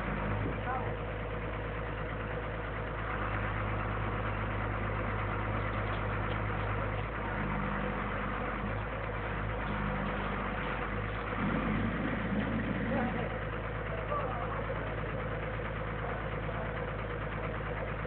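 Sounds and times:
truck engine idling: 0:00.0 - 0:18.0.

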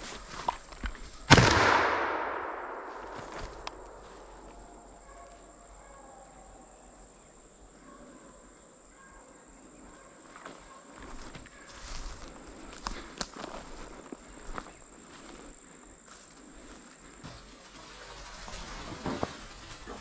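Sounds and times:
shotgun blast echoing: 0:01.3 - 0:04.0.

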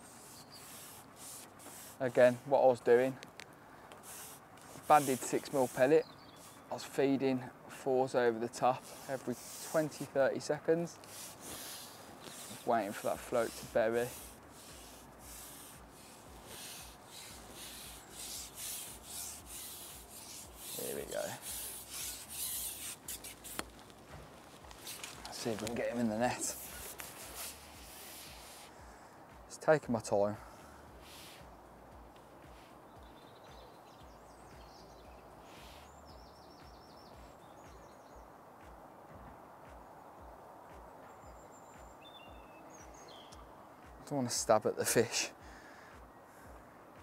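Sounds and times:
rustling rubbing noise: 0:00.0 - 0:03.2, 0:04.0 - 0:07.0, 0:08.4 - 0:28.8
outdoor background noise: 0:00.0 - 0:47.0
small birds chirping: 0:00.0 - 0:47.0.

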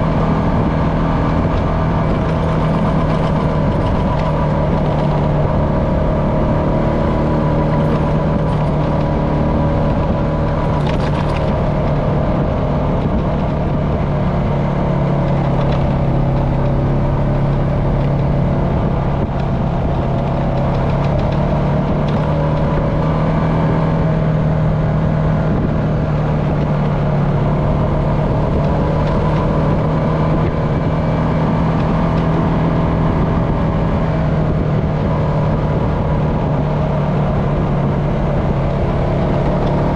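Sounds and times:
atv engine running: 0:00.0 - 0:39.9.

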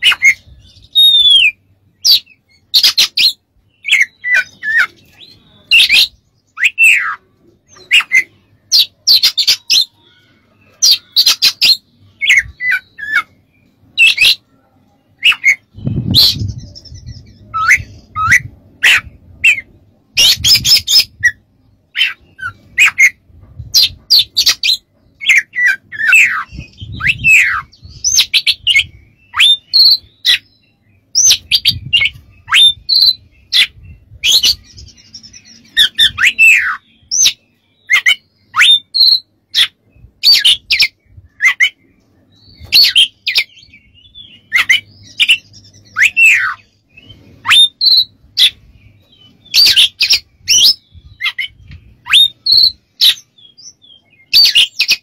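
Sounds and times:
bird singing varied song: 0:00.0 - 0:55.0.

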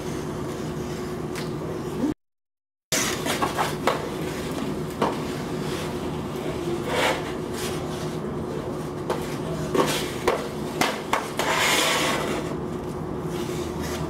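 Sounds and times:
skate blade scraping ice: 0:06.8 - 0:07.8, 0:11.1 - 0:12.6
ice skate blades clacking: 0:09.2 - 0:12.5.

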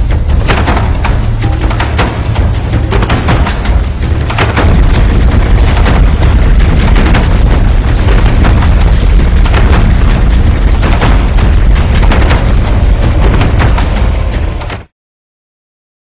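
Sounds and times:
low rumble: 0:00.0 - 0:14.9
sharp bangs and cracks: 0:00.0 - 0:14.9.

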